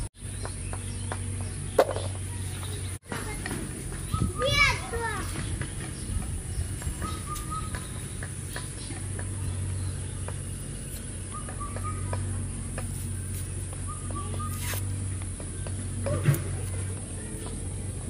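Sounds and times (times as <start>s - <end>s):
steady low hum: 0.0s - 18.0s
bird call: 6.9s - 9.0s, 11.2s - 12.4s, 13.8s - 14.8s.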